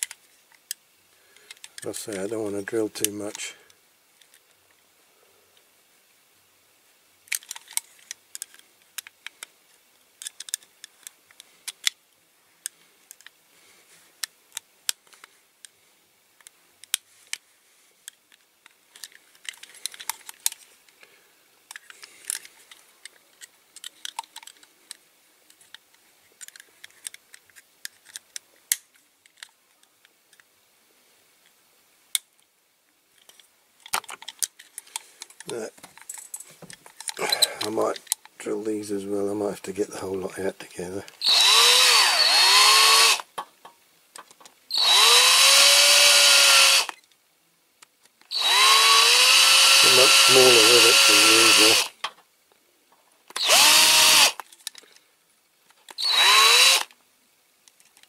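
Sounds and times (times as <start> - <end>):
screwdriver scraping metal: 41.2 - 43.2, 44.7 - 47.0, 48.3 - 51.9, 53.4 - 54.4, 56.0 - 56.9.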